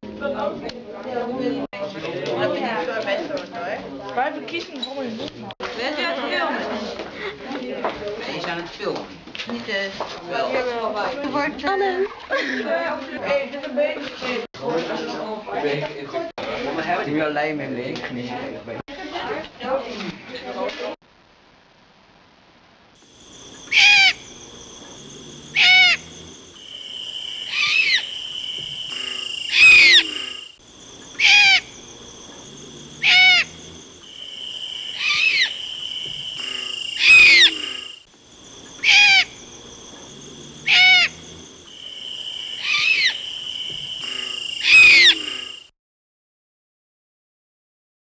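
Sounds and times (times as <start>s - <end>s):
steady high tones: 23.1s - 45.7s
owl calls: 23.5s - 32.0s, 32.9s - 39.5s, 40.5s - 45.6s.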